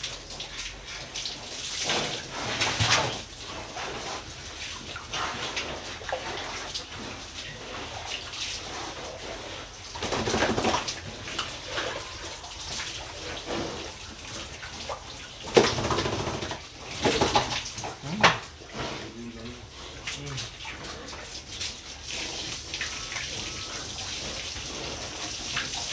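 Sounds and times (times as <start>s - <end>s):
hose water spraying and splashing: 0.0s - 25.9s
pigs grunting: 5.0s - 25.9s.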